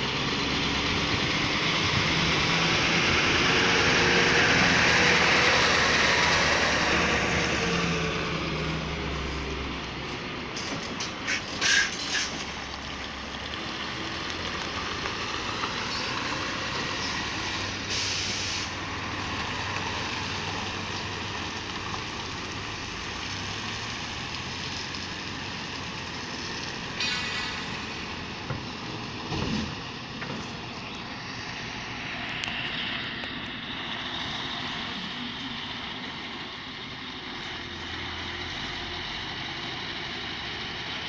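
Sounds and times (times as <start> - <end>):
diesel engine running: 0.0 - 41.0
air hiss: 17.9 - 18.8.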